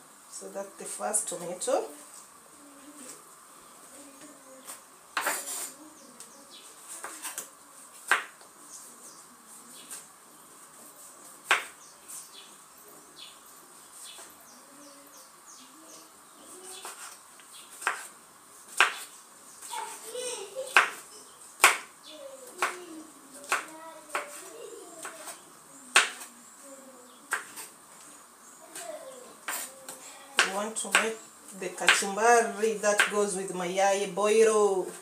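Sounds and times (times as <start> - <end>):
knife chopping on wooden board: 8.0 - 8.4, 11.4 - 11.8, 17.8 - 18.1, 18.7 - 19.0, 21.6 - 21.9, 23.4 - 24.4, 30.4 - 31.1.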